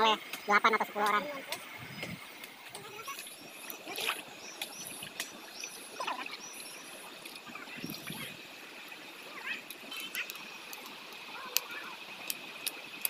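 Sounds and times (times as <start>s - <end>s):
stream flowing: 0.0s - 13.0s
water sloshing from pot scooping: 2.3s - 8.4s.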